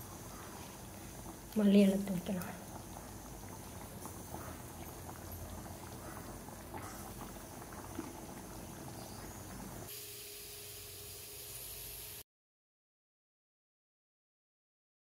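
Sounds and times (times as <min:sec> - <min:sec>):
thick stew bubbling and popping: 0:00.0 - 0:09.9
steady hiss: 0:00.0 - 0:12.2.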